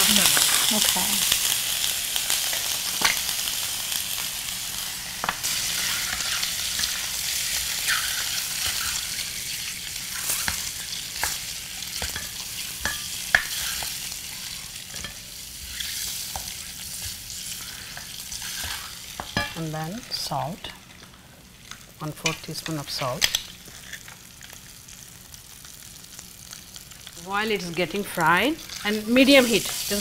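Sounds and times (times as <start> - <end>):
eggs sizzling in oil: 0.0 - 30.0.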